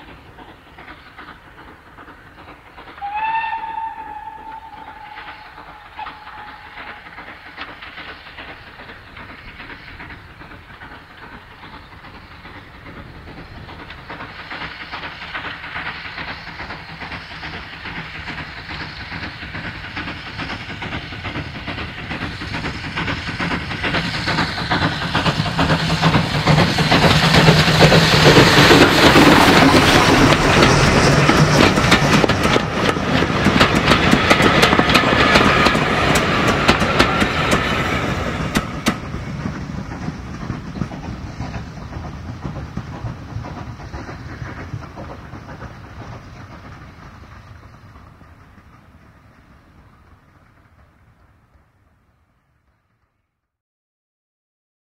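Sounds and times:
steam locomotive exhaust: 0.0s - 52.4s
coaches clattering over rail joints: 4.6s - 49.2s.

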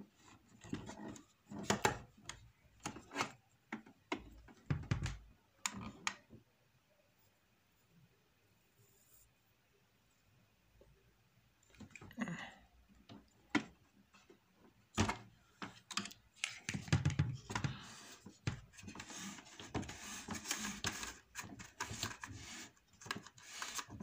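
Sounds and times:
paper rustling and tapping: 15.0s - 19.0s.

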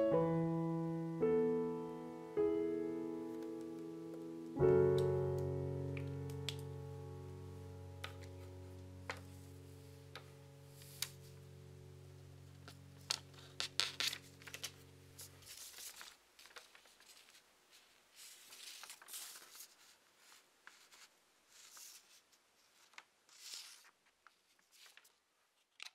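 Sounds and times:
low steady hum: 0.2s - 15.8s
paper rustling and crinkling: 8.0s - 11.4s, 12.6s - 25.9s
paper clicks and swishes: 13.1s - 25.9s.

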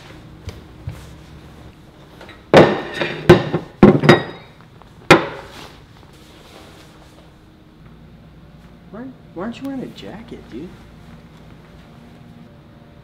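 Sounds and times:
ceramic mugs clunking on table: 2.6s - 5.5s.

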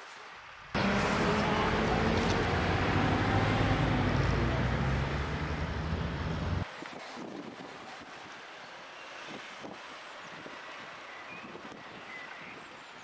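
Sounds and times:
tyre and road noise: 0.0s - 13.0s
vehicle driving past: 0.7s - 6.6s.

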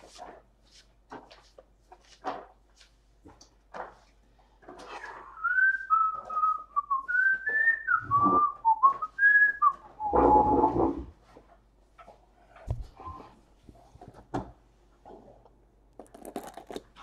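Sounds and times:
person whistling a tune: 5.2s - 10.8s.

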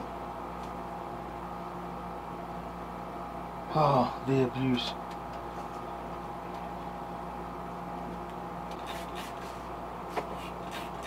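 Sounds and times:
steady motor hum: 0.0s - 11.0s
quick scratchy sounds: 8.8s - 9.6s.

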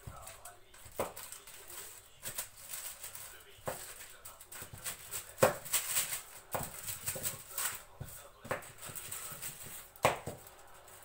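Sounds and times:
plastic sheet rustling: 0.0s - 11.0s
rolling pin knocking on plastic: 4.6s - 5.8s, 6.5s - 10.5s.

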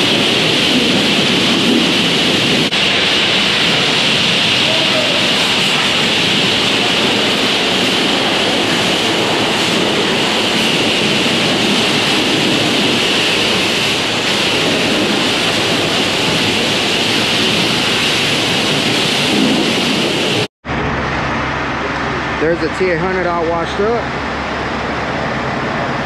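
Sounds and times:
pressure washer spray hissing: 0.0s - 20.5s.

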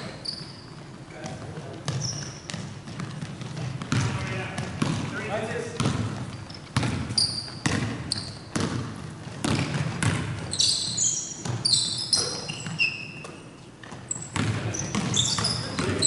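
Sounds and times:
sneakers squeaking on floor: 0.0s - 16.0s
basketball bouncing on hardwood: 1.2s - 5.1s, 5.8s - 10.6s, 11.4s - 12.8s, 13.8s - 16.0s.

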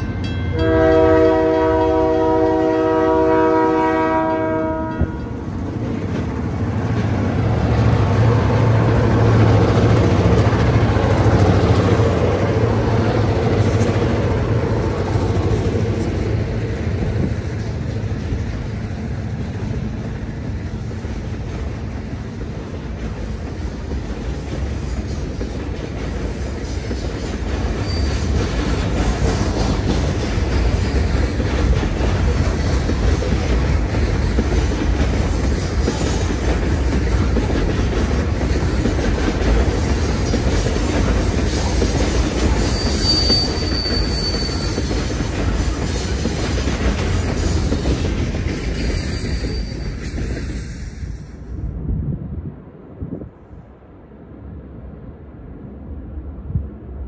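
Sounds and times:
train wheels rumbling on rail: 0.0s - 57.0s
high wheel squeal: 27.7s - 28.4s, 41.6s - 46.4s, 48.7s - 51.4s.

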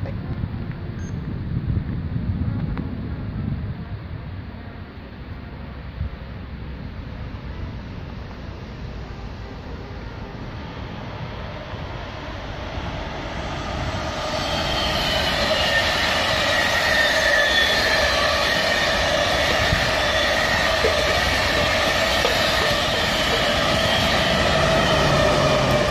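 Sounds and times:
train rumbling past: 1.3s - 25.9s
high whining tones: 10.6s - 25.9s.

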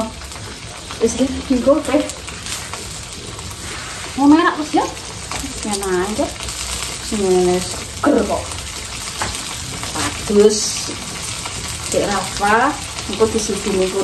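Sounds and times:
chilies sizzling in oil: 0.0s - 14.0s
woman's voice: 1.0s - 2.2s, 4.2s - 6.4s, 7.0s - 8.5s, 9.9s - 11.0s, 11.9s - 14.0s.

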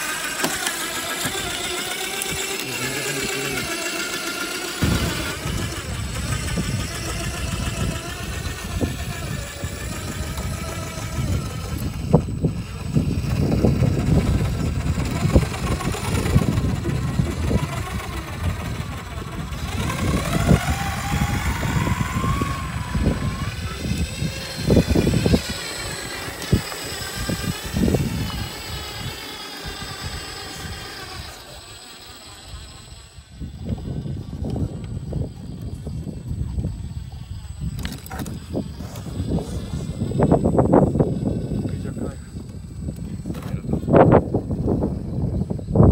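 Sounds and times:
electric motor and gears whining: 0.0s - 45.9s
wind buffeting microphone: 0.0s - 45.9s.

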